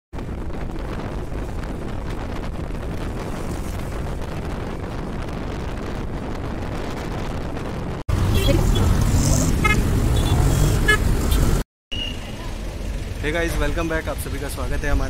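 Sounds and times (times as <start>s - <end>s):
road and traffic noise: 0.1s - 15.0s
wind buffeting microphone: 0.2s - 11.6s.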